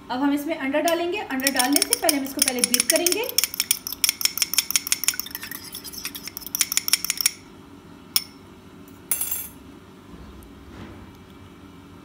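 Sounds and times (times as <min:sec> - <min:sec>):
fork beating egg in cup: 0:01.3 - 0:07.4.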